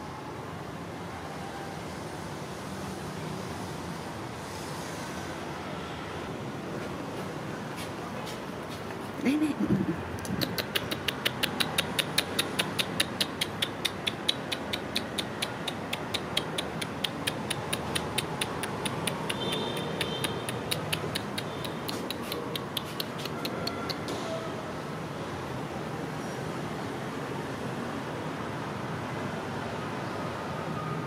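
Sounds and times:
rapid even clicking: 0:10.2 - 0:24.0.

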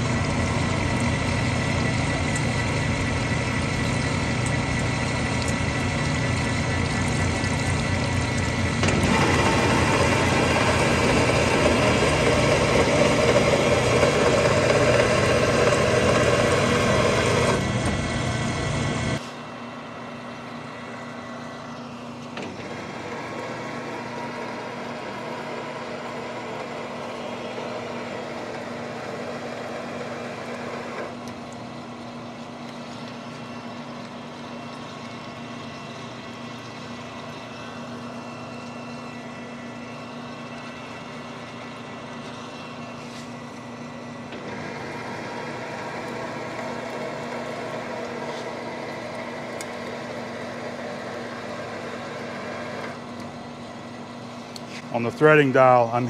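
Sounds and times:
lathe humming: 0:00.0 - 0:19.2, 0:20.5 - 0:56.0
coolant pouring: 0:00.0 - 0:56.0
lathe cutting metal: 0:08.7 - 0:19.2.

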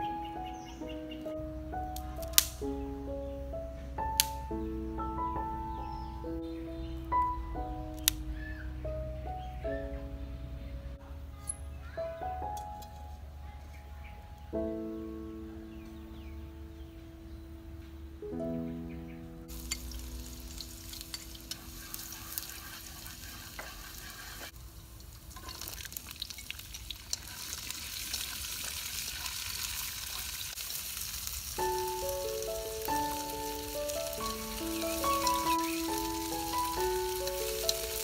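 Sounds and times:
green beans sizzling in a wok: 0:19.5 - 0:38.0
wooden utensil scraping a pan: 0:20.6 - 0:24.6.

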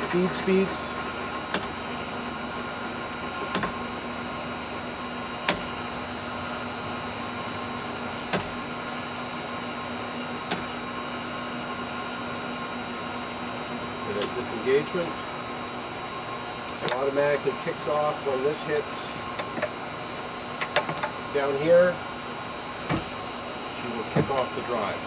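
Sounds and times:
drill press motor humming: 0:00.0 - 0:18.5.

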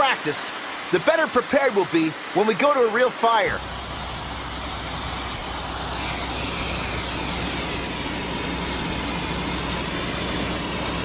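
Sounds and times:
water jet rushing and hissing: 0:00.0 - 0:11.0
pump humming: 0:03.4 - 0:11.0.

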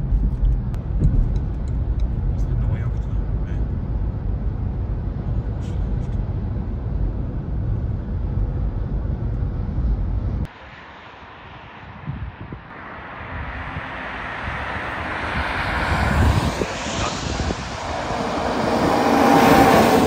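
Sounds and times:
car cabin road rumble: 0:00.0 - 0:10.5.

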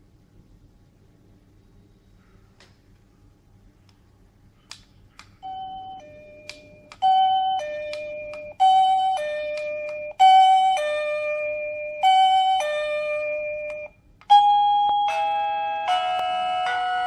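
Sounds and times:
two-tone doorbell chime: 0:05.4 - 0:17.0.

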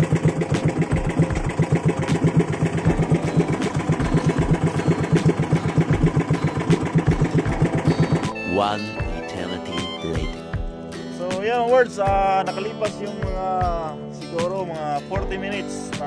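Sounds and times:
boat engine chugging: 0:00.0 - 0:10.7.

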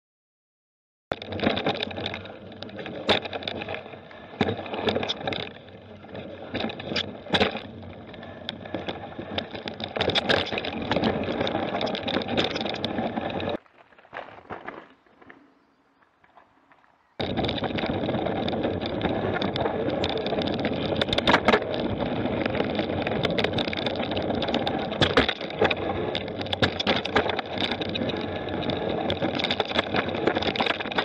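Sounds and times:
bike tyres rumbling and rattling: 0:01.1 - 0:31.0
sharp knocks and clicks: 0:04.4 - 0:13.6, 0:17.2 - 0:31.0.

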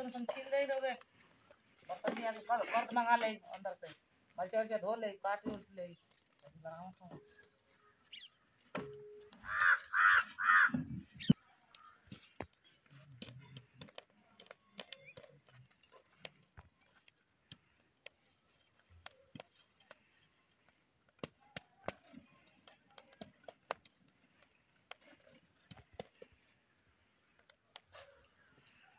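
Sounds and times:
embers ticking and crackling: 0:00.0 - 0:28.9
animal calling: 0:09.4 - 0:11.4.

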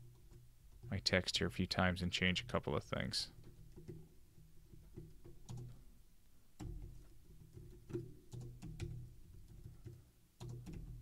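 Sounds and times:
keyboard keys clicking: 0:06.6 - 0:11.0.

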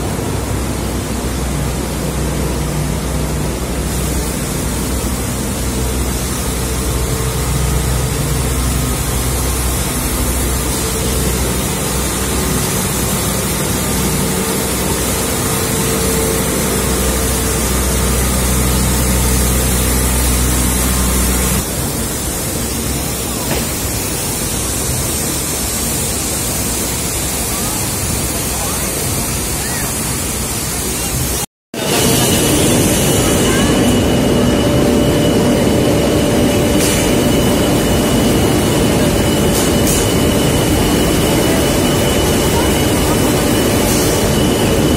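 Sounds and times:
low hum: 0:00.0 - 0:22.0
mill machinery running: 0:00.0 - 0:44.9.

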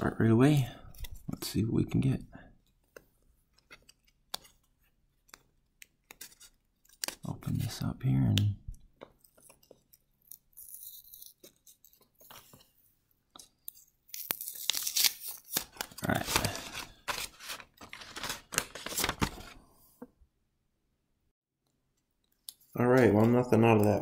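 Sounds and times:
paper strap ripping: 0:14.1 - 0:19.4
bills rustling: 0:14.4 - 0:19.6.

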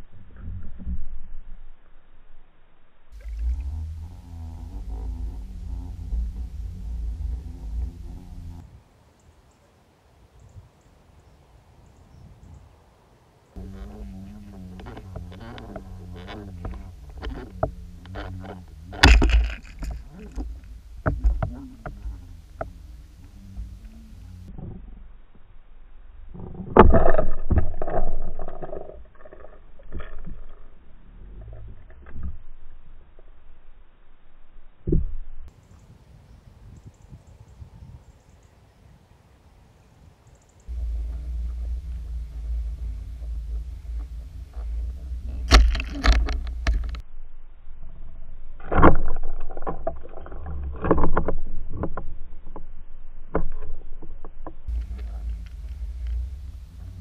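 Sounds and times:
underwater rumble of water: 0:00.0 - 0:08.9, 0:13.6 - 0:35.6, 0:40.7 - 0:57.0
underwater water rushing: 0:03.2 - 0:04.0
clicks and knocks of lures: 0:14.8 - 0:22.8, 0:40.7 - 0:47.0.

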